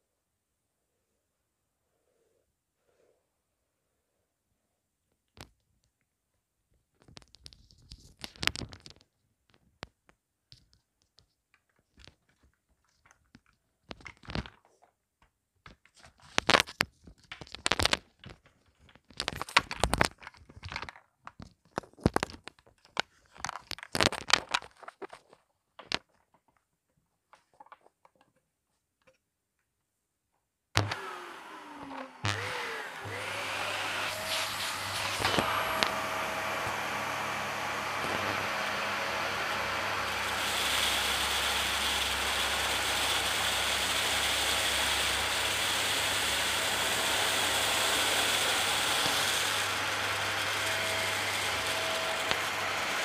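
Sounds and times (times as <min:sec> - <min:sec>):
granules crunching on hard floor: 0:11.2 - 0:14.9, 0:15.6 - 0:26.6
vacuum cleaner running: 0:30.8 - 0:53.0.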